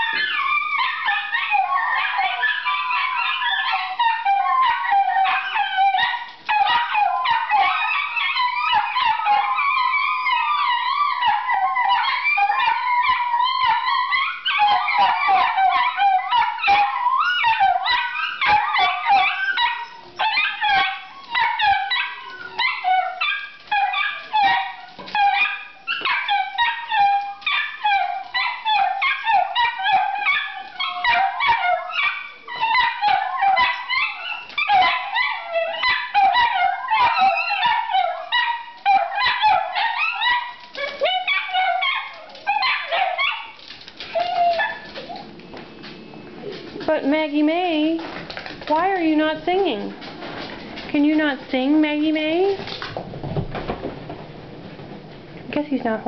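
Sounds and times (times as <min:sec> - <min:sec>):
dogs howling: 0:00.0 - 0:46.9
dogs yipping and whining: 0:00.0 - 0:51.2
claws clicking on tile floor: 0:39.9 - 0:45.3.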